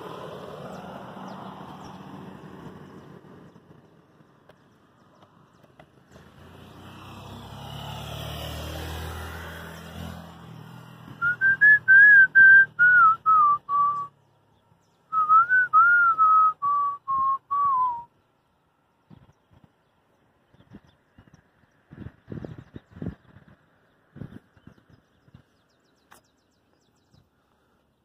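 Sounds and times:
person whistling a tune: 11.2 - 14.1, 15.1 - 18.1.

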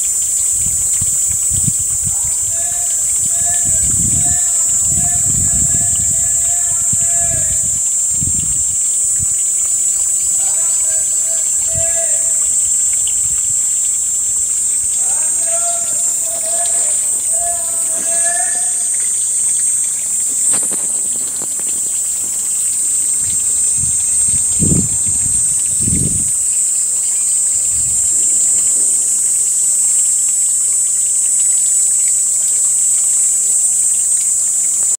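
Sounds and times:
cicada buzzing: 0.0 - 35.0.

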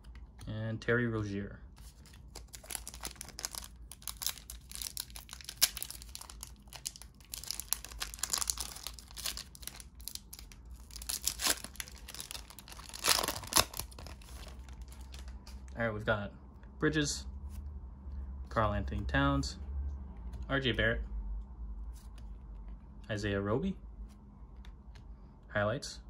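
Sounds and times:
foil wrapper tearing and crinkling: 2.1 - 15.4.

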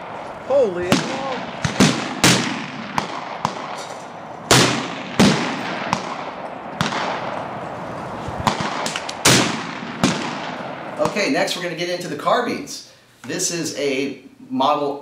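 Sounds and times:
loud rifle shots with echo: 0.0 - 11.4
fainter distant gunshots: 0.0 - 11.8.

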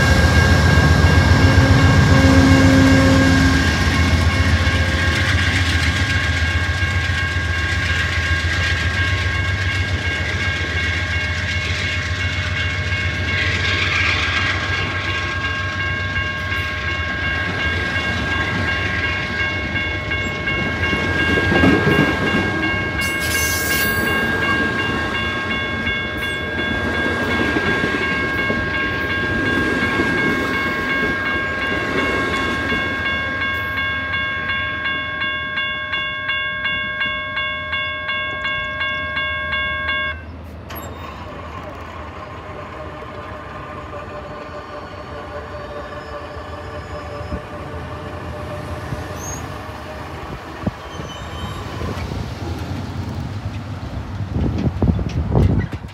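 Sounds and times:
wheels clicking over rail joints: 50.3 - 55.9.

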